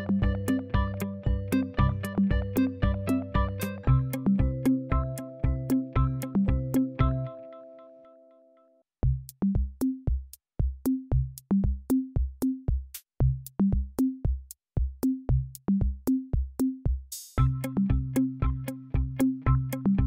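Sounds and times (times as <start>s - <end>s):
drum machine beat: 0.0s - 7.3s, 9.0s - 20.0s
short bass notes: 0.0s - 7.3s
sustained keyboard chords: 0.0s - 8.4s, 17.4s - 20.0s
clicking hi-hats: 12.8s - 13.6s, 17.1s - 17.8s.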